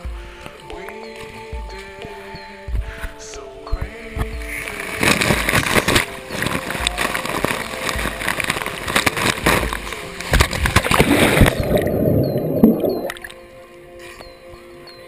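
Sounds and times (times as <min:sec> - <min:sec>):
water rushing and splashing: 0:04.8 - 0:13.4
muffled underwater sound: 0:10.4 - 0:13.3.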